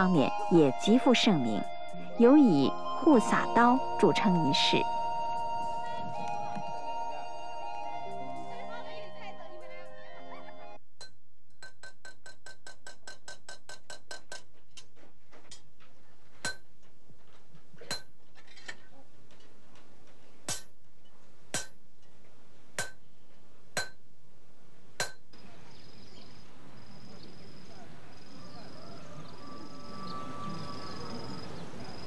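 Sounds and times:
hammer tapping steel blade: 0:23.8 - 0:24.0.

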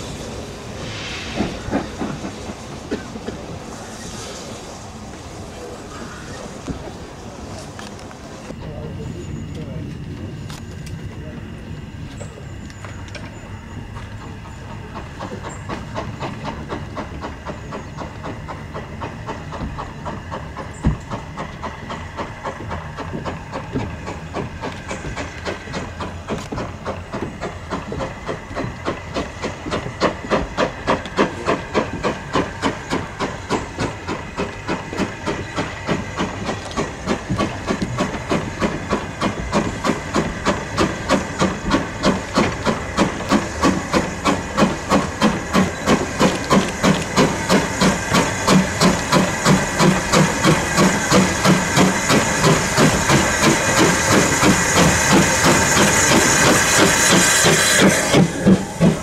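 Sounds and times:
steam hiss: 0:00.0 - 0:08.6, 0:13.6 - 0:59.0
steam locomotive chuffing: 0:00.0 - 0:59.0.

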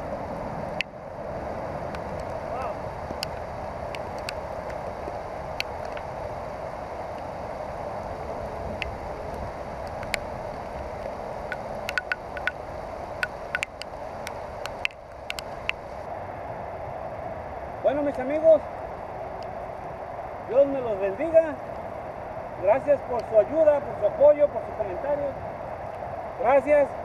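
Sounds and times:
rain falling on creek: 0:00.0 - 0:16.1
sharp ticks: 0:03.1 - 0:06.1, 0:09.8 - 0:10.3, 0:11.0 - 0:12.6, 0:13.2 - 0:16.0.

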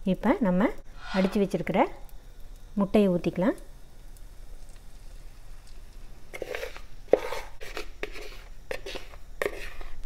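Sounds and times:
spoon scraping mixing bowl: 0:06.4 - 0:10.0.

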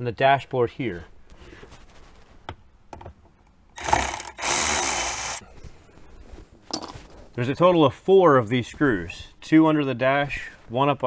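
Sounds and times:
electric ratchet running: 0:03.8 - 0:05.4.

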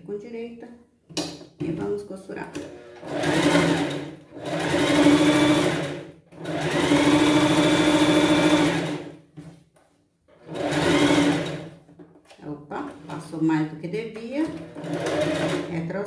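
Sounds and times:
sewing machine stitching: 0:02.6 - 0:09.1, 0:10.4 - 0:11.8, 0:14.5 - 0:15.8.

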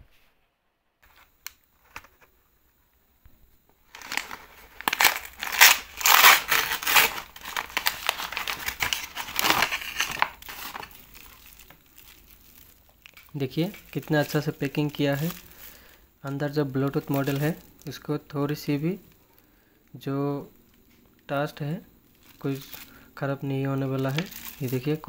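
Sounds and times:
packaging crinkling: 0:03.8 - 0:18.0, 0:22.0 - 0:25.0.

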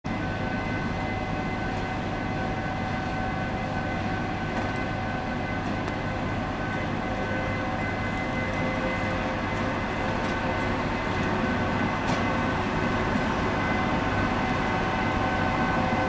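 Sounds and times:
locomotive hum: 0:00.1 - 0:16.0
machinery whining tones: 0:00.1 - 0:16.0.

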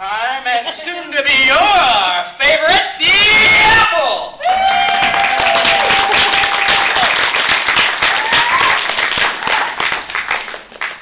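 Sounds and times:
audience applause: 0:04.5 - 0:11.0.

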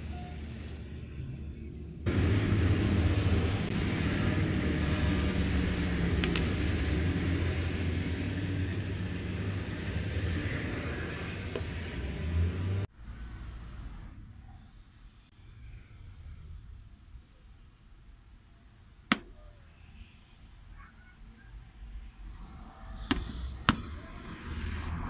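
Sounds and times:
steady low rumble: 0:00.7 - 0:12.0.

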